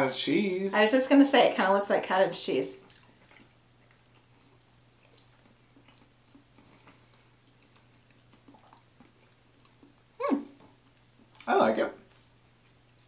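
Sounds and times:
faint low hum: 0.0 - 13.0
people chewing: 2.8 - 13.0.

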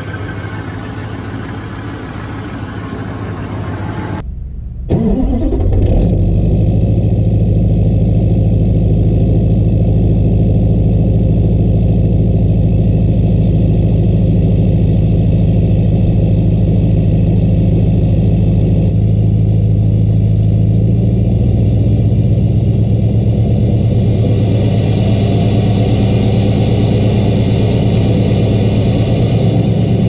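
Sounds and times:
turbocharger whistle: 0.0 - 4.2, 23.6 - 30.0
diesel engine high idle: 0.0 - 30.0.

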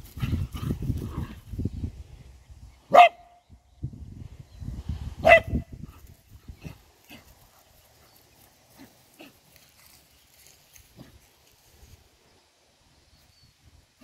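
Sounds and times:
dog barking: 2.9 - 3.3, 5.2 - 5.6.

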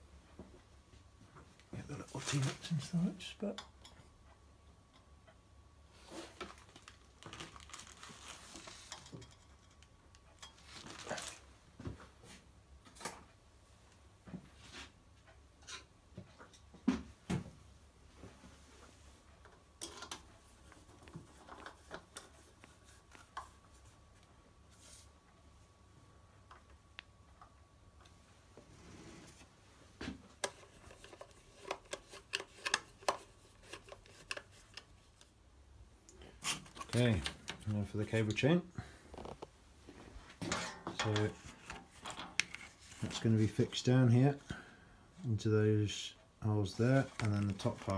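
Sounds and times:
tools handled on workbench: 40.3 - 43.2.

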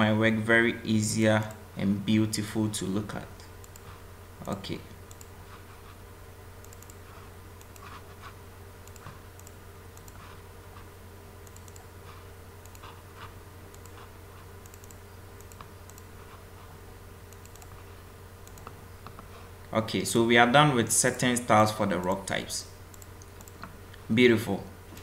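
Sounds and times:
steady low hum: 0.0 - 25.0
mouse and keyboard clicks: 6.6 - 16.4.

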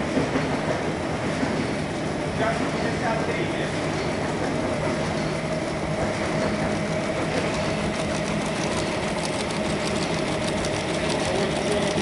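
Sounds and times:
printing machine running: 0.0 - 12.0
fine rapid ticking: 6.3 - 12.0.

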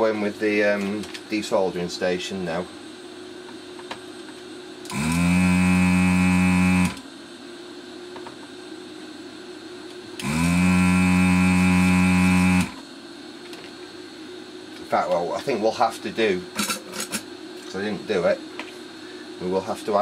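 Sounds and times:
faint steady hum: 0.0 - 20.0
vacuum pump buzzing: 4.8 - 7.2, 10.0 - 12.9.

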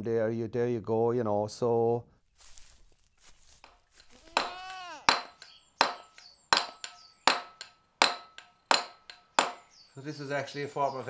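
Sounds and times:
mallet striking steel chisel: 5.1 - 9.7.

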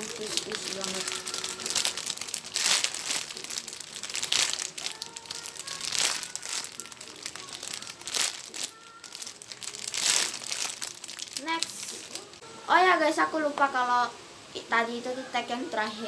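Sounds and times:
plastic bag crinkling: 0.0 - 12.4.

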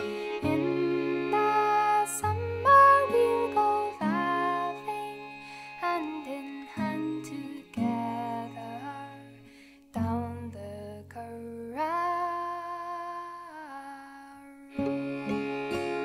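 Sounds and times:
held wavering melody note: 0.0 - 10.5
plucked string chords: 0.0 - 12.6, 14.6 - 16.0
gentle folk music: 0.0 - 16.0.

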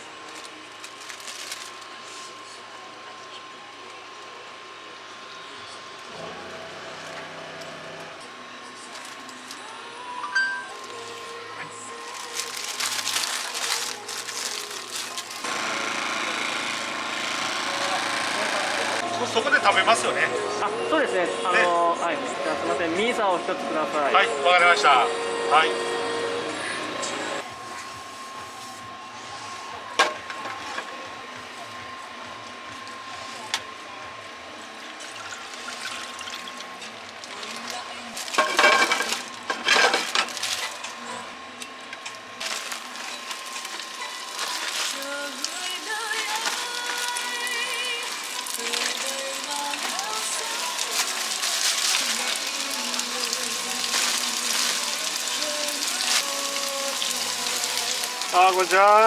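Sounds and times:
plastic bag crinkling: 0.2 - 2.0, 10.7 - 15.5, 35.5 - 40.8, 42.4 - 59.0
paper rustling: 0.2 - 2.3, 12.0 - 15.5, 42.4 - 58.8.

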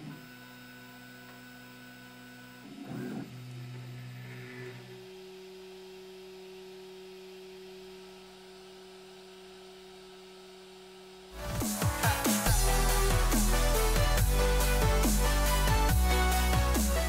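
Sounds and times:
three d printer humming: 0.0 - 16.7
electronic music: 11.3 - 17.0.

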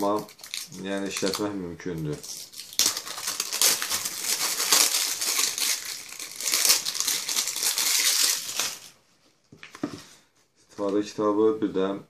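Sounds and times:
plastic wrapping crinkling: 0.0 - 9.0.

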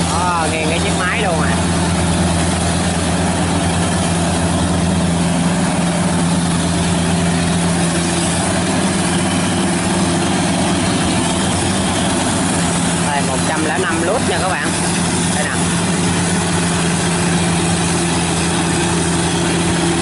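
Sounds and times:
combine harvester engine hum: 0.0 - 20.0
noisy wash of working machinery: 0.0 - 20.0.

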